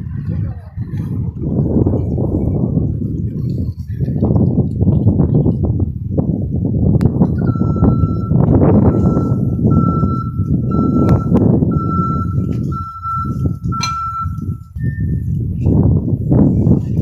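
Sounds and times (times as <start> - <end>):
low rumble of street noise: 0.0 - 17.0
short high beep: 7.4 - 15.3
vehicle reversing alarm beeping: 7.4 - 15.4.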